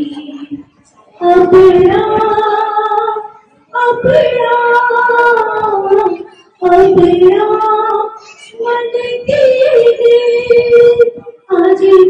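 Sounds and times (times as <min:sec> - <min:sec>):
woman singing unaccompanied: 0:00.0 - 0:12.0.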